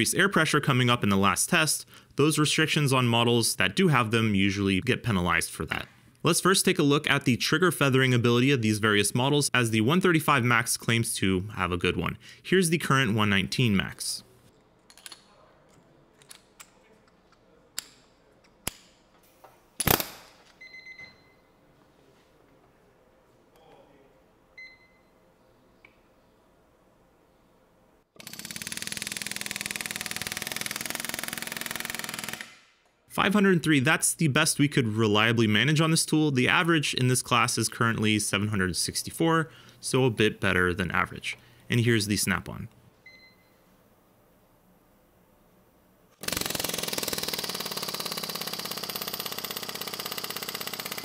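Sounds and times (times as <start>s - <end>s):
air hammer firing into steel: 19.8s - 20.4s
pneumatic air hammer on steel: 46.2s - 51.0s.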